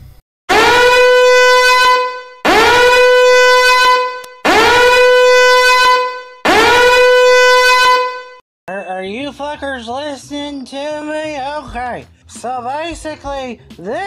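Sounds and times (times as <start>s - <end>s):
alarm horn blaring: 0.5s - 8.4s.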